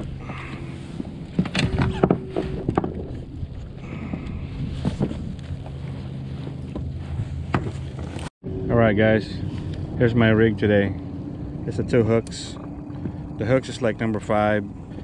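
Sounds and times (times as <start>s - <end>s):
boat motor idling: 0.0s - 15.0s.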